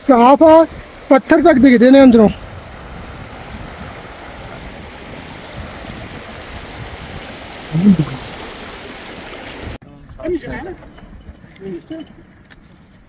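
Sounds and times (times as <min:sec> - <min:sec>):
stream running over stones: 0:00.0 - 0:09.8.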